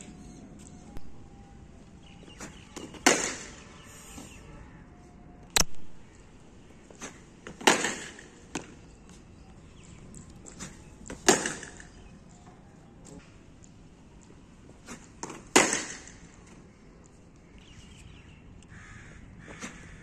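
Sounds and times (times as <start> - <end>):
bat striking cricket ball: 2.4 - 3.6, 7.0 - 8.8, 11.1 - 12.0, 14.9 - 16.3
sharp crack: 2.4 - 3.6, 7.0 - 8.8, 10.5 - 12.0, 14.9 - 16.4.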